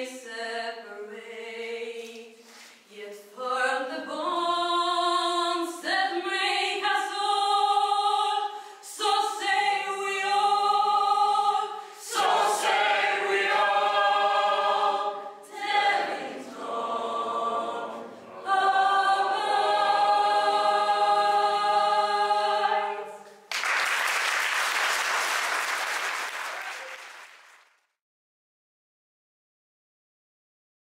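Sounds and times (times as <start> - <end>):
choir singing a cappella: 0.0 - 23.5
audience applause: 23.5 - 27.8.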